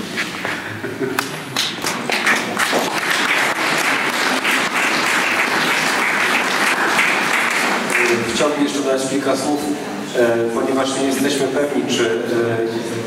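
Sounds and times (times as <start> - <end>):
audience applauding: 1.2 - 8.7.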